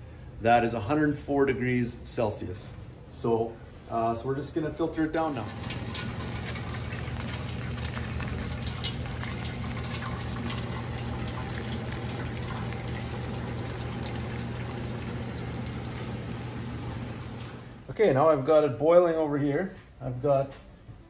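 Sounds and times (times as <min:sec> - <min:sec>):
sap boiling: 0:05.2 - 0:18.0
syrup running from tap: 0:05.3 - 0:17.8.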